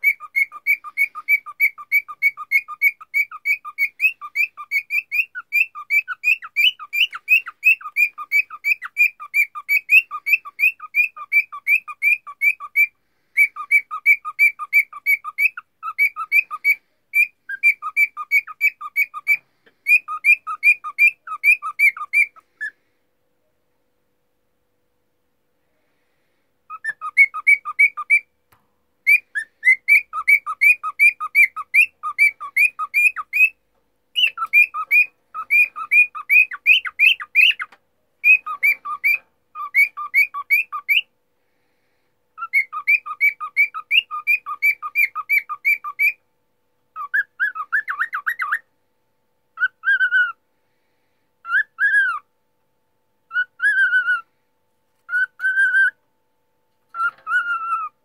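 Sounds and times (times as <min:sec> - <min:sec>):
cockatiel chatter: 0:00.0 - 0:22.7, 0:26.7 - 0:28.2, 0:29.1 - 0:33.6, 0:34.2 - 0:41.1
cockatiel whistling: 0:00.0 - 0:22.8, 0:26.7 - 0:28.3, 0:29.0 - 0:41.1, 0:42.4 - 0:46.2, 0:47.0 - 0:48.6, 0:49.6 - 0:50.4, 0:51.4 - 0:52.3, 0:53.3 - 0:54.3, 0:55.1 - 0:56.0, 0:56.9 - 0:58.0.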